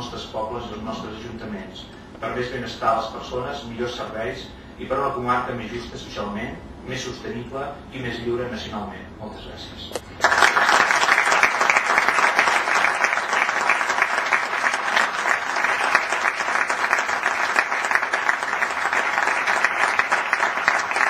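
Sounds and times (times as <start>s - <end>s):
crowd applauding: 10.2s - 21.0s.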